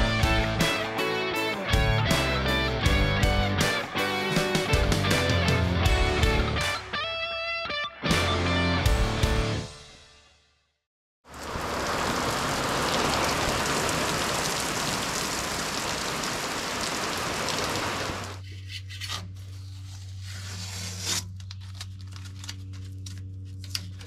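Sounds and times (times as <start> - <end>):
heavy rain on pavement: 11.3 - 18.4.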